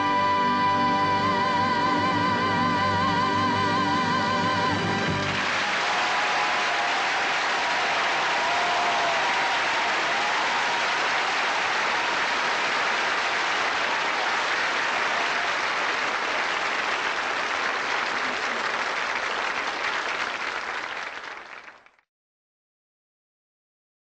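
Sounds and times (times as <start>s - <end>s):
audience applauding: 5.0s - 22.0s.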